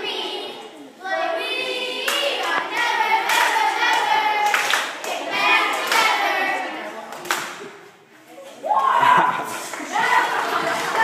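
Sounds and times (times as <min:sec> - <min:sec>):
girls singing together: 0:00.0 - 0:07.3, 0:09.8 - 0:11.0
hand claps: 0:03.3 - 0:05.2.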